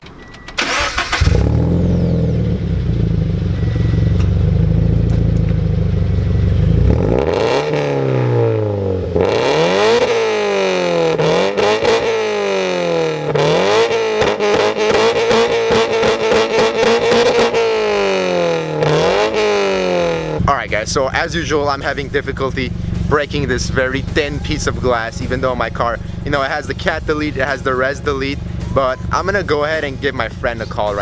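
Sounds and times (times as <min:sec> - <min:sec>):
car engine starting: 0:00.0 - 0:31.0
engine revving in blips: 0:00.5 - 0:31.0
loud engine idling: 0:00.6 - 0:07.0, 0:15.8 - 0:31.0.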